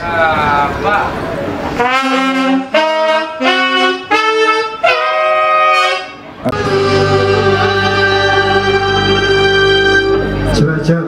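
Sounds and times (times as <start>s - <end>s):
band playing sustained chords: 0.4s - 11.0s
saxophones playing held notes: 1.8s - 10.6s.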